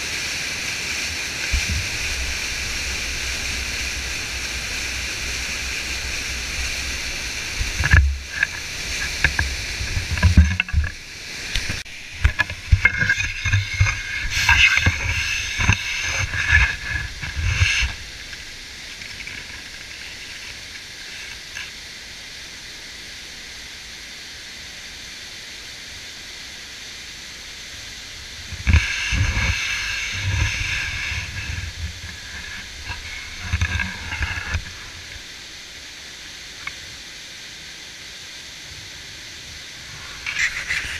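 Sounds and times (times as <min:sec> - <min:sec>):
water rushing over rapids: 0:00.0 - 0:40.9
wind buffeting microphone: 0:00.6 - 0:18.8, 0:28.2 - 0:35.3.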